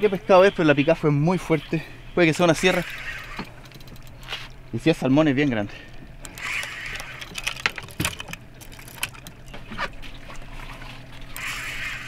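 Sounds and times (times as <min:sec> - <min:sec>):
reel hissing buzz: 0:02.5 - 0:04.7, 0:06.2 - 0:08.3, 0:11.2 - 0:12.0
fishing reel clicks and knocks: 0:02.6 - 0:04.5, 0:06.2 - 0:09.4, 0:11.3 - 0:12.0.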